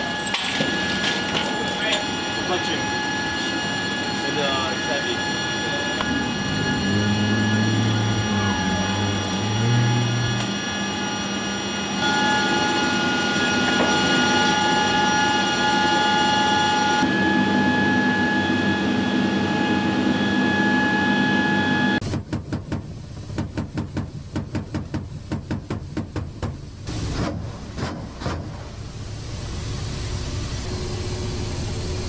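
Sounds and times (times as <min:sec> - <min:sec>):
helicopter rotor beating: 0:00.0 - 0:22.2
aircraft machinery whine and hum: 0:00.0 - 0:32.0.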